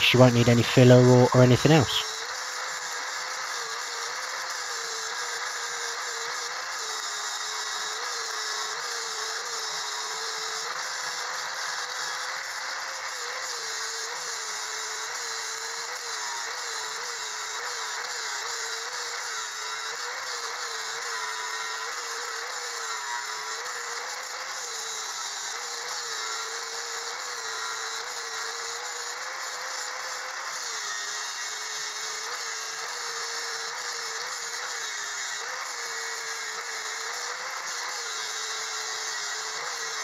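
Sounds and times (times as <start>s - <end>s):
angle grinder grinding steel: 17.9s - 40.0s.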